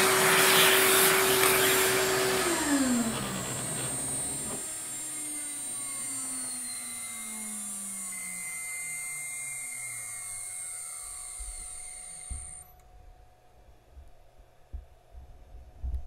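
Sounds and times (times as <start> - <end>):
high-pitched whine: 0.0 - 12.8
spindle motor winding down: 0.0 - 12.8.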